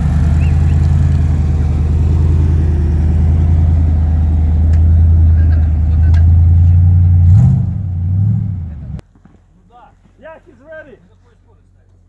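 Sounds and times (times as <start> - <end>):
truck engine droning: 0.0 - 9.0.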